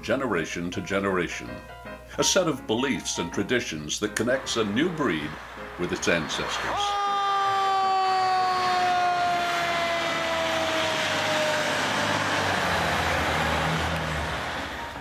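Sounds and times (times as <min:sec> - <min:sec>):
truck engine rumble: 0:03.0 - 0:15.0
siren wailing: 0:04.7 - 0:14.9.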